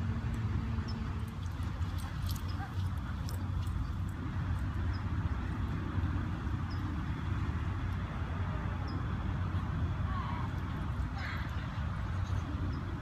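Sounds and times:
low outdoor rumble: 0.0 - 13.0.

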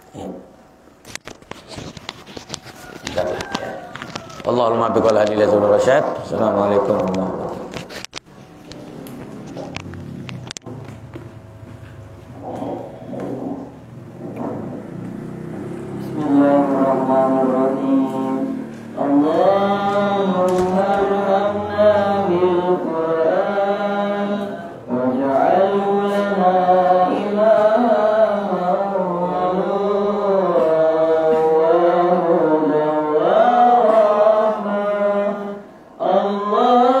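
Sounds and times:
man chanting: 3.1 - 7.7, 15.6 - 37.0.

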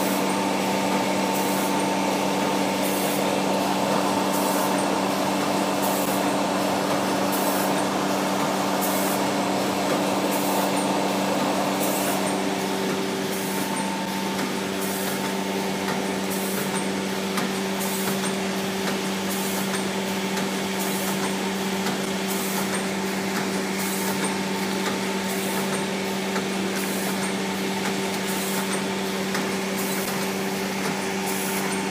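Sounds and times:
rough machine noise: 0.0 - 18.3
machine motor hum: 0.0 - 31.9.

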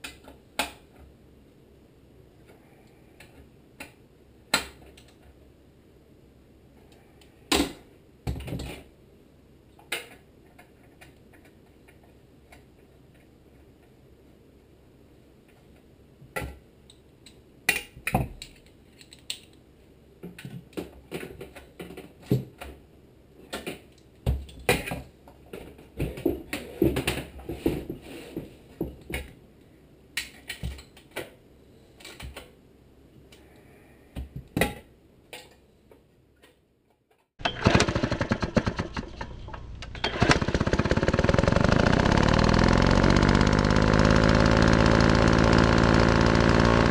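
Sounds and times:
loud steady machine sound: 40.0 - 46.9.

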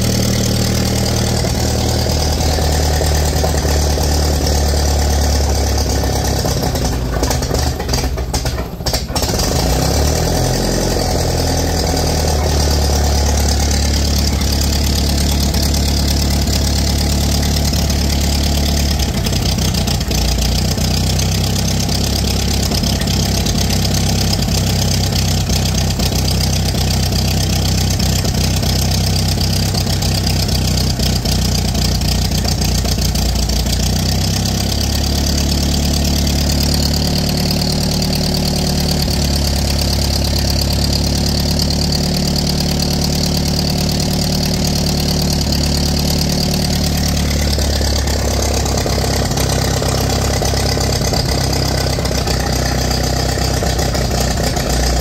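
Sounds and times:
tractor engine idling: 0.0 - 55.0.

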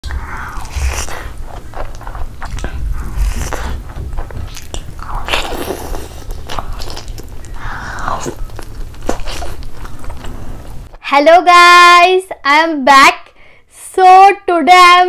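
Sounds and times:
person chewing food: 0.0 - 11.0
low background hum: 0.0 - 15.0.

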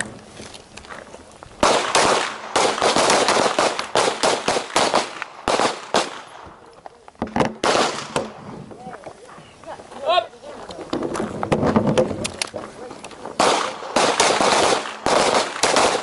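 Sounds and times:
pistol shots: 1.6 - 6.4, 7.6 - 8.3, 13.4 - 16.0.

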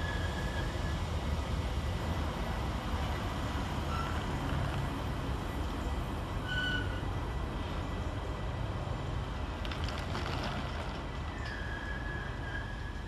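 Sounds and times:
high wheel squeals: 0.0 - 1.0, 3.8 - 4.3, 6.4 - 7.1, 11.3 - 13.0
freight train wheels rumbling: 0.0 - 13.0.

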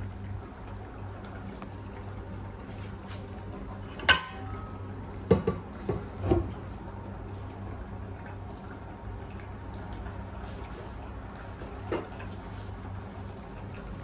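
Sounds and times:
steady low hum: 0.0 - 14.0
metal kitchenware clinking: 4.0 - 4.6.

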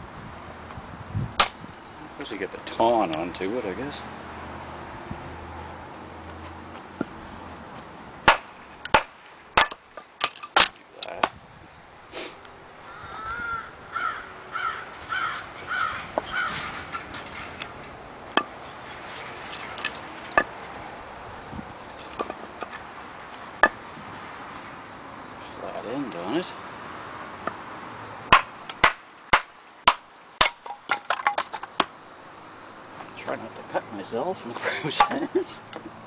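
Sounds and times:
hatchet chopping wood: 1.4 - 1.6, 8.2 - 11.4, 28.3 - 31.9
crow cawing: 12.8 - 16.8.

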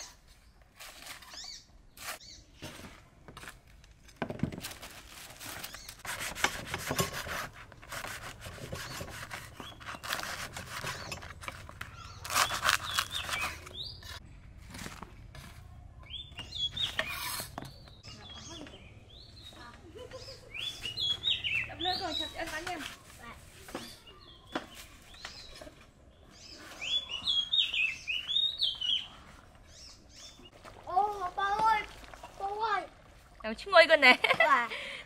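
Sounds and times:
knife sawing through crusty bread: 6.0 - 11.2, 12.2 - 13.6.

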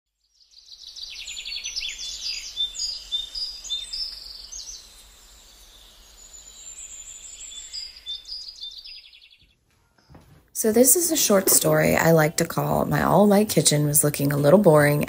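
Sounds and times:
birds singing and chirping: 0.4 - 9.6.

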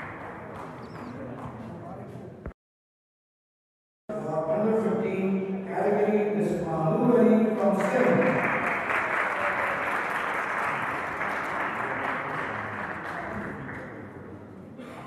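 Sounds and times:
audience applauding: 7.8 - 14.1.

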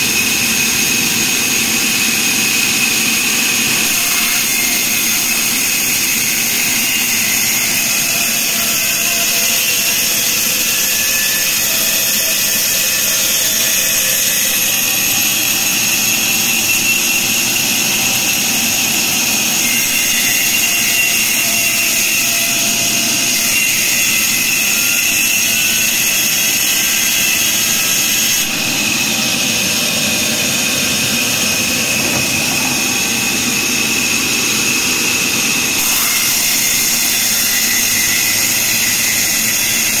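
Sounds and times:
high blade whine: 0.0 - 40.0.

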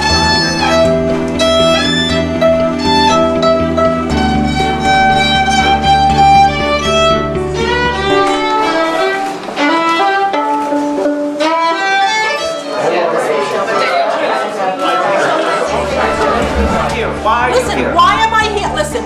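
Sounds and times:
violin melody: 0.0 - 13.1, 15.6 - 19.0
low sustained drone: 15.7 - 18.4.

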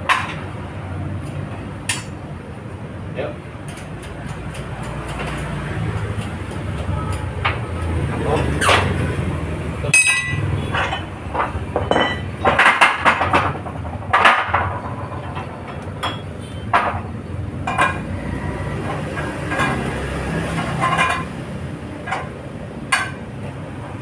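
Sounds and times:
metal clanks and knocks: 9.9 - 21.4, 22.0 - 23.3.

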